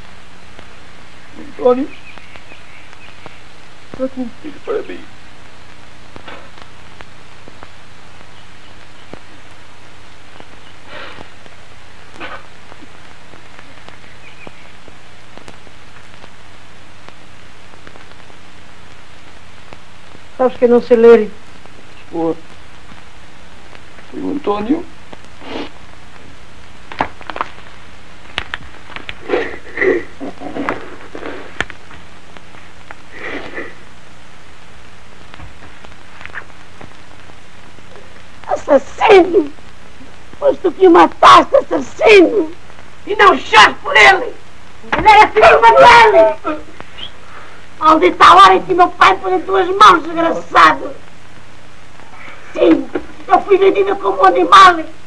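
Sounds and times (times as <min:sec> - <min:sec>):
film soundtrack hiss: 0:00.0 - 0:55.0
mains hum: 0:00.0 - 0:55.0
faint clicks: 0:10.4 - 0:16.4, 0:30.4 - 0:33.6
person sobbing and sniffling: 0:29.2 - 0:31.6, 0:33.1 - 0:33.9.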